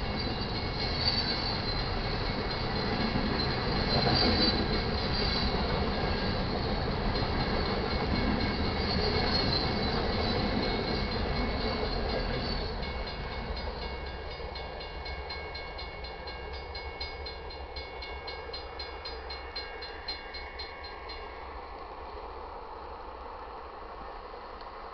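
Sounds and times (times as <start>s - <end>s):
train wheels squealing on rail: 0.0s - 17.4s.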